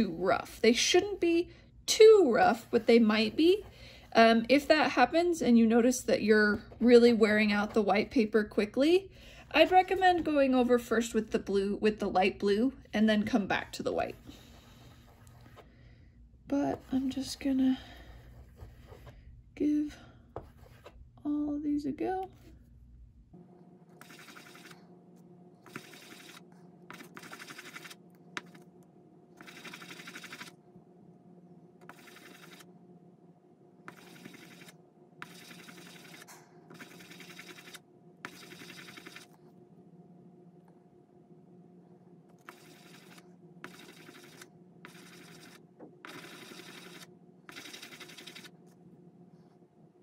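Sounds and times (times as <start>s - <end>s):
faint steady hum: 0.0s - 50.0s
die scrubbing on polishing paper: 31.9s - 32.7s, 33.9s - 39.3s.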